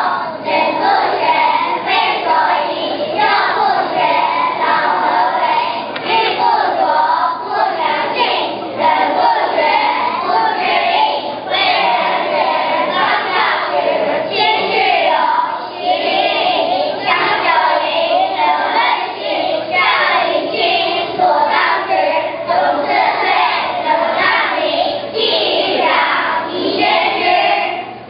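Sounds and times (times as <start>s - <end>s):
children singing in chorus: 0.0s - 28.0s.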